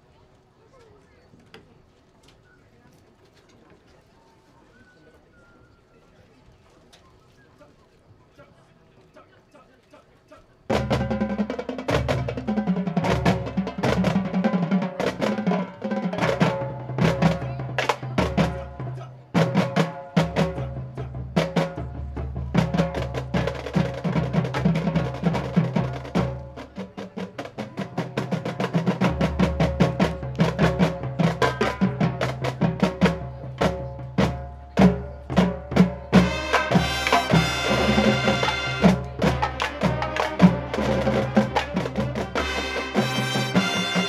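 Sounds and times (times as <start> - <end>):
marching band drums and percussion: 10.7 - 44.0
loud sustained brass chords: 36.3 - 39.0, 42.4 - 44.0.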